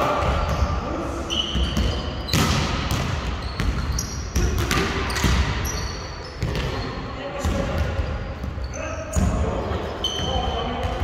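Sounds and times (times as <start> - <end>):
shoes squeaking on court: 1.3 - 7.2, 7.8 - 11.0.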